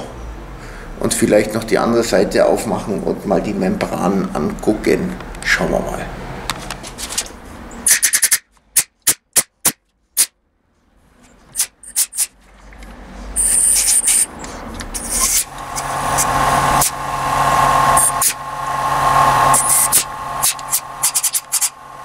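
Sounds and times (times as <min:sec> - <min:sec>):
air blow gun hissing: 0:13.4 - 0:22.0
air compressor motor humming: 0:13.4 - 0:22.0.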